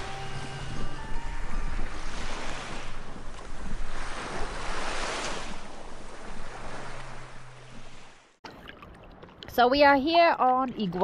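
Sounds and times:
wind rumbling on microphone: 0.0s - 8.0s
small waves washing on sand: 0.0s - 8.4s.

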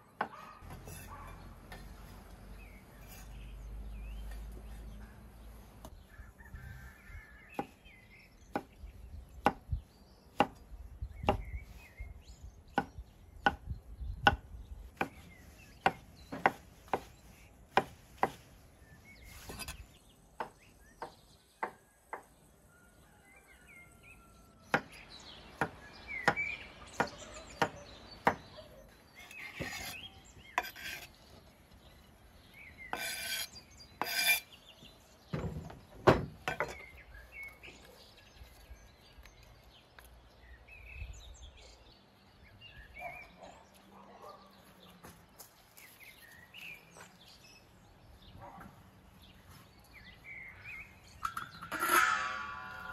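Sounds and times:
birds chirping: 0.0s - 52.9s
knife scraping across wood: 0.3s - 6.0s, 15.0s - 20.0s, 29.0s - 31.8s, 32.6s - 34.7s
knife chopping on wooden board: 12.8s - 13.6s, 15.8s - 17.1s.

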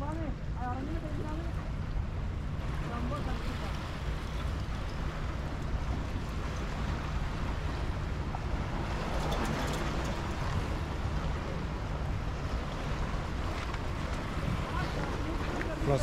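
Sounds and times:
wind rumbling on microphone: 0.0s - 16.0s
sea washing against rocks: 5.0s - 16.0s.

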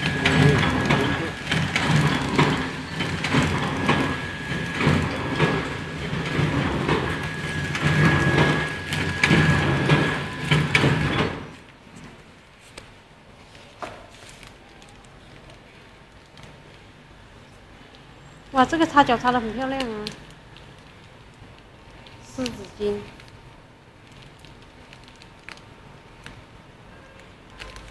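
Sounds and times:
machine high whine: 0.0s - 11.7s
packing machine clattering: 0.0s - 12.4s, 24.0s - 27.9s.

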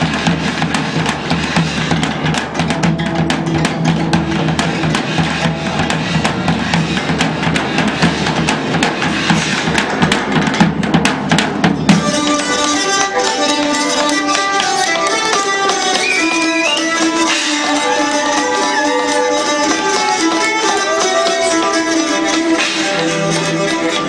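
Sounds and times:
fast dense drumming: 0.0s - 16.7s
bagpipe drone: 11.9s - 24.0s
keyed fiddle playing: 11.9s - 24.0s.

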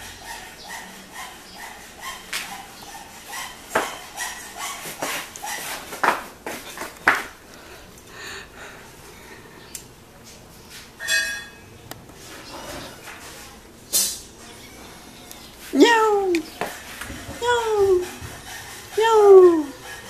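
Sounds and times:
flip-flops slapping on concrete: 4.8s - 7.4s.

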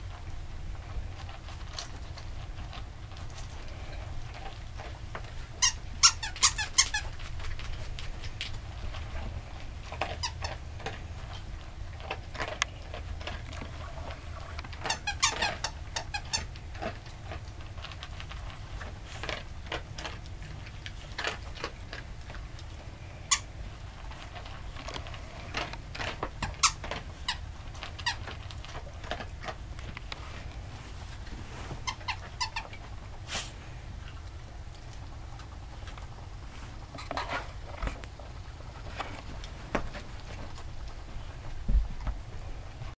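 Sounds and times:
squeaky toy squeaking: 5.6s - 7.0s.

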